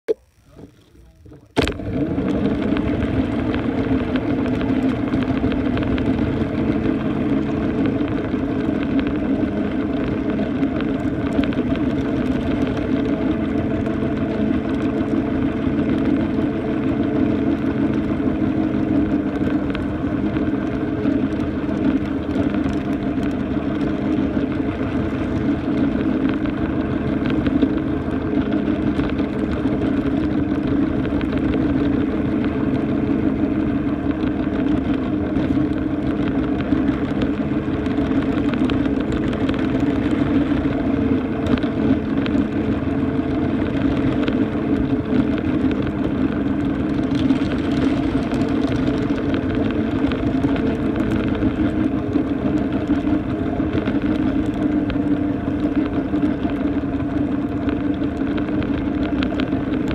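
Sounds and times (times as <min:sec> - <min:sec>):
wheels rolling on track: 0:00.3 - 0:59.9.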